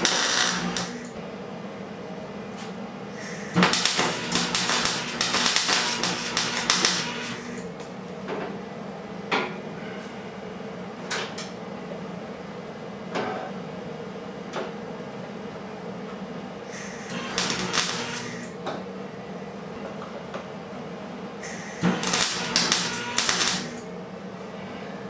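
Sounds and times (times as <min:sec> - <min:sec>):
arc welding crackling: 0:00.0 - 0:01.2, 0:03.3 - 0:07.7, 0:16.8 - 0:18.5, 0:21.5 - 0:23.9
steady hum: 0:00.0 - 0:25.0.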